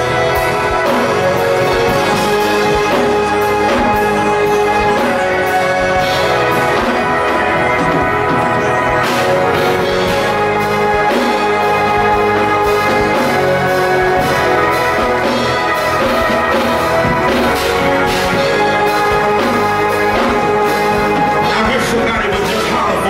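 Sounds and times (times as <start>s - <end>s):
percussion hits: 0.0s - 23.0s
sustained held chords: 0.0s - 23.0s.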